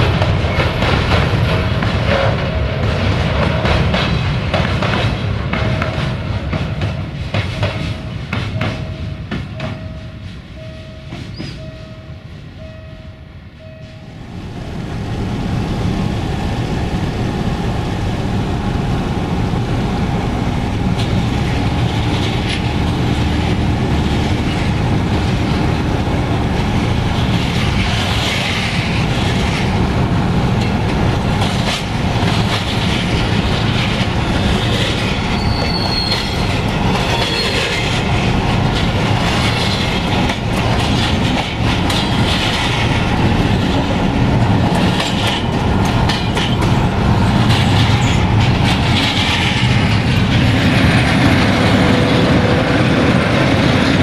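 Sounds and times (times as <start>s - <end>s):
wheels clicking over rail joints: 20.2s - 54.0s.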